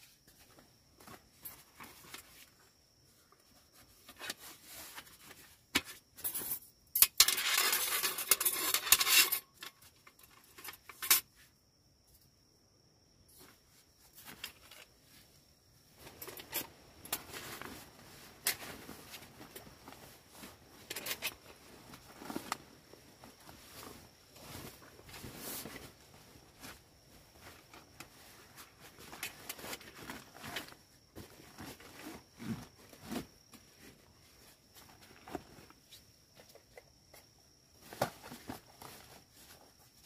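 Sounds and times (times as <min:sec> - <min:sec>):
nylon fabric rustling: 0:16.0 - 0:35.7.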